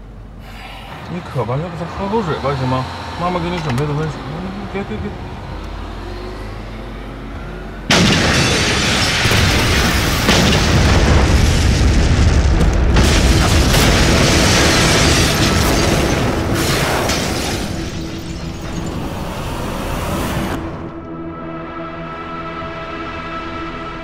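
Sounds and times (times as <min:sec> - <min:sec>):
loud explosion: 0:07.9 - 0:17.8
crashes: 0:07.9 - 0:20.7
music: 0:17.5 - 0:24.0.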